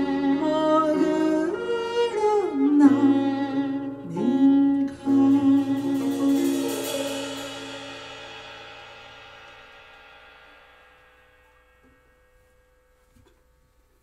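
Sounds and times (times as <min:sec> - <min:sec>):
live ensemble music: 0:00.0 - 0:09.5.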